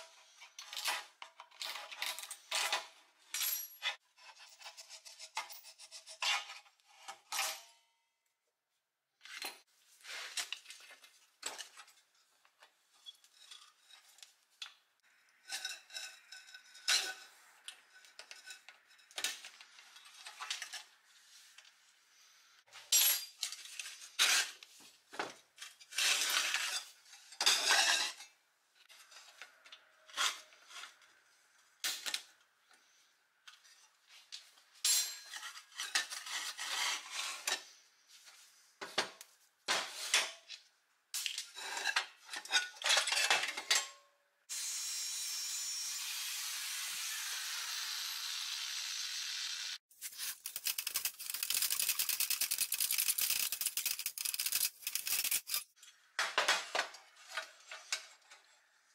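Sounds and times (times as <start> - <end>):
metal clinks and scrapes: 11.4 - 14.3, 15.0 - 21.1, 34.8 - 37.8, 49.9 - 56.0.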